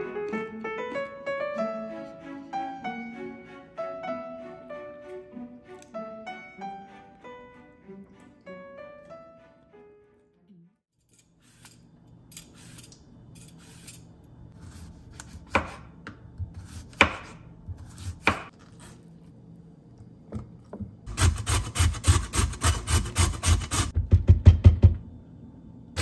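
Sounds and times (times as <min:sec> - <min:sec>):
knife chopping cucumber on board: 0:14.6 - 0:15.9, 0:16.5 - 0:18.5.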